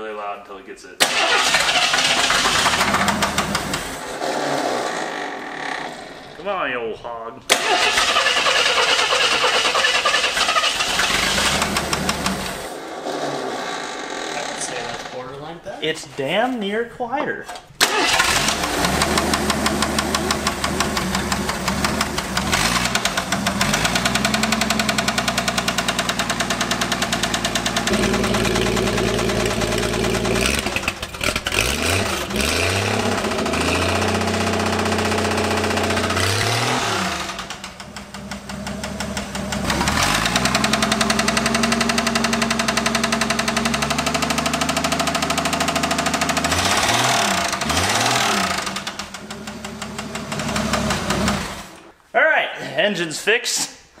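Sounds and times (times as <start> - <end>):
car engine knocking and revving: 2.3 - 4.0, 11.0 - 12.6, 18.2 - 51.8.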